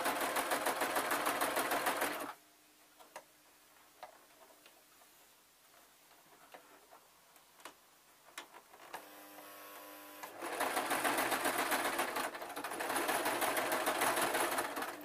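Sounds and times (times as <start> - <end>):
sewing machine stitching fast: 0.0 - 2.4, 10.3 - 15.0.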